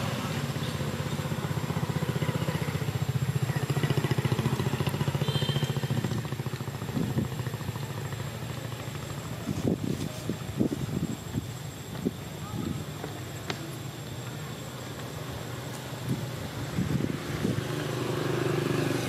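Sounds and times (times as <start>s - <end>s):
small engine idling: 0.0s - 12.0s.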